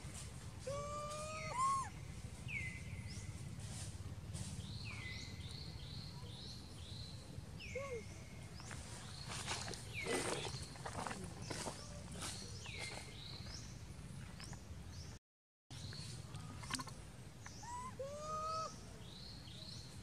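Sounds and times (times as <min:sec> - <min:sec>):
steady low hum: 0:00.0 - 0:14.3
animal squealing call: 0:00.6 - 0:01.9, 0:17.6 - 0:18.8.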